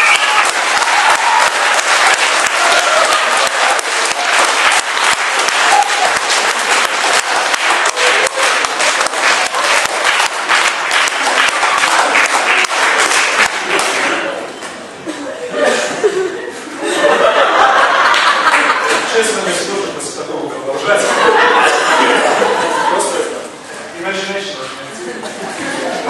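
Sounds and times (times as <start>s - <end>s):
crowd applauding: 0.0s - 14.4s, 17.6s - 19.3s.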